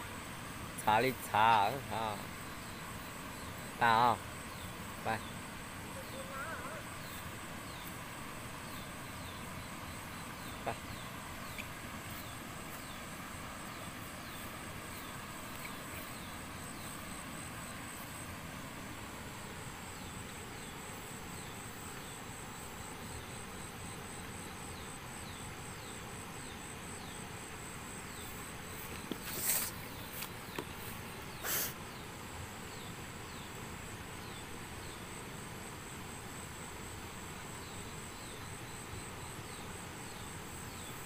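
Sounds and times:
high-pitched insect drone: 0.8s - 30.3s.

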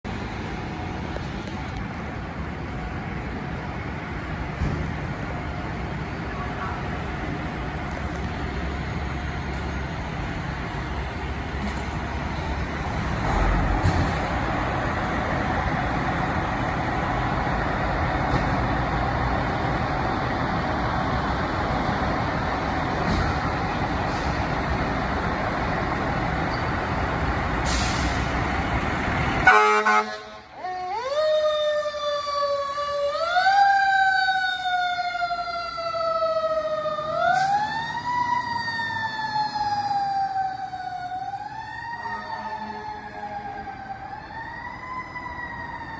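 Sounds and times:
fire engine diesel engine: 0.0s - 45.9s.

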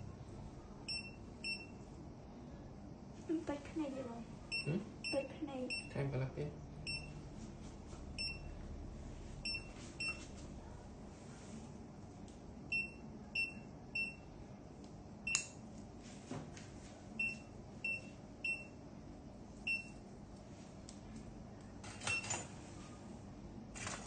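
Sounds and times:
patient monitor beeps: 0.8s - 1.8s, 4.5s - 6.0s, 6.8s - 7.2s, 8.1s - 8.6s, 9.4s - 10.3s, 12.7s - 14.3s, 17.2s - 18.8s, 19.6s - 20.0s, 22.0s - 22.5s.

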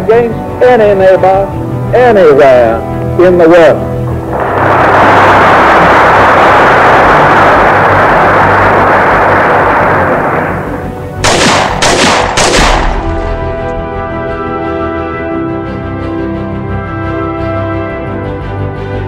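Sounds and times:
sharp bangs: 4.1s - 14.5s
dense gunfire-like rattle: 4.3s - 13.6s
music with held tones: 13.1s - 19.0s.

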